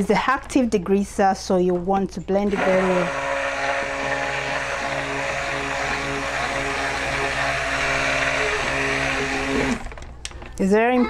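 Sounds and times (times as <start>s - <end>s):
stick blender motor humming: 2.5s - 10.1s.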